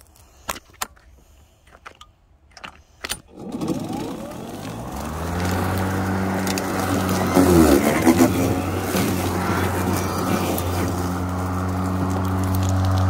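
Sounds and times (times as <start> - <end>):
electric mower motor whine: 3.3 - 13.0.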